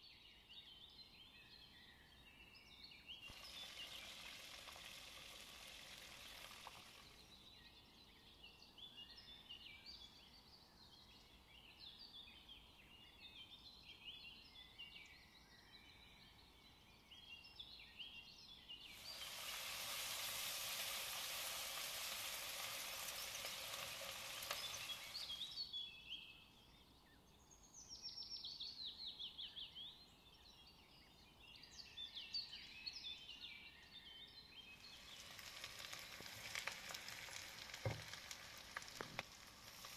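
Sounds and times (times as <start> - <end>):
high chirps and crackles: 3.3 - 7.2, 18.9 - 25.7, 34.8 - 39.9
oil sizzling in a wok: 3.3 - 7.2, 18.9 - 25.6, 34.8 - 39.9.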